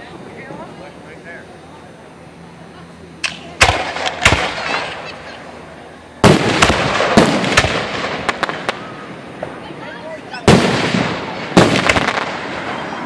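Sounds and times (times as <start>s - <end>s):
firework shells bursting: 3.2s - 5.3s, 6.2s - 9.6s, 10.4s - 12.9s.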